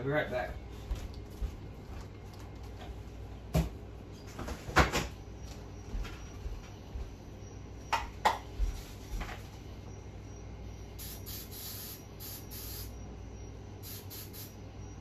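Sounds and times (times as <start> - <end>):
low steady hum: 0.0 - 15.0
objects knocking and clunking: 7.9 - 8.5.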